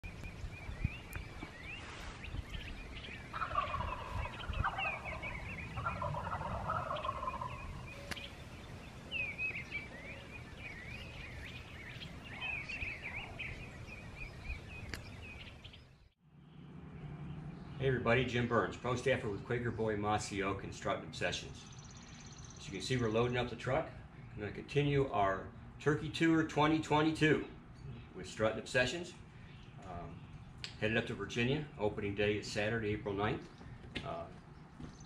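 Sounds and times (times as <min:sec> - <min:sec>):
songbirds chirping: 0:00.0 - 0:35.0
turkey gobbling: 0:02.5 - 0:08.3.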